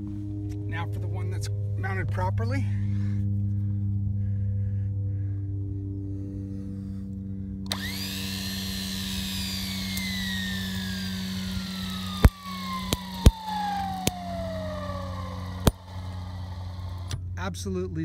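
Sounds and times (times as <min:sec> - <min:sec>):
engine hum: 0:00.0 - 0:18.0
high winch whine: 0:02.4 - 0:17.4.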